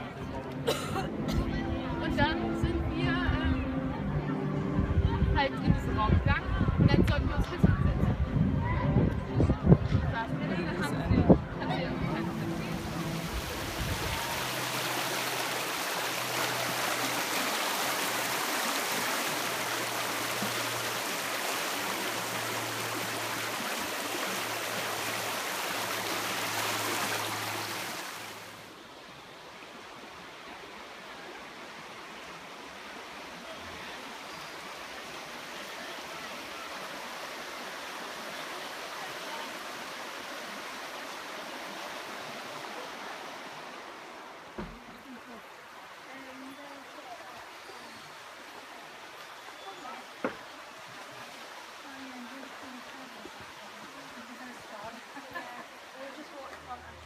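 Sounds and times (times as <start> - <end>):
steady outdoor hiss: 0.0 - 57.0
stream rushing in whitewater: 11.6 - 57.0.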